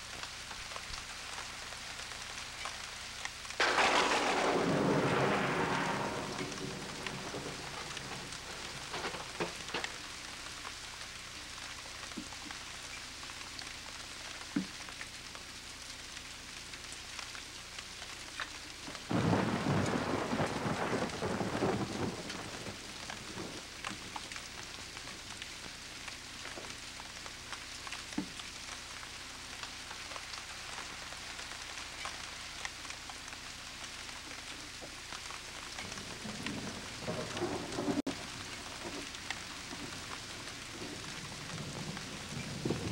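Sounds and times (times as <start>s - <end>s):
rain hiss: 0.0s - 42.9s
thunder rumble: 3.6s - 10.2s, 18.9s - 25.4s, 35.8s - 42.9s.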